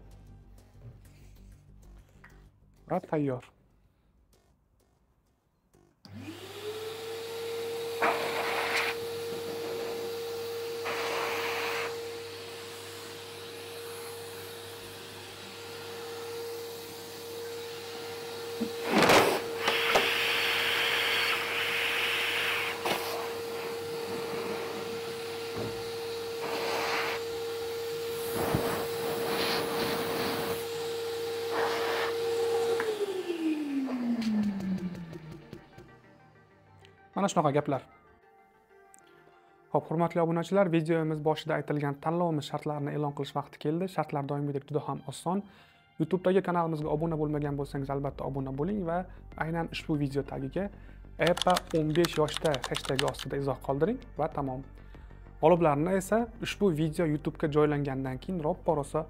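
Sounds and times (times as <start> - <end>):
industrial vacuum motor running: 6.0 - 36.4.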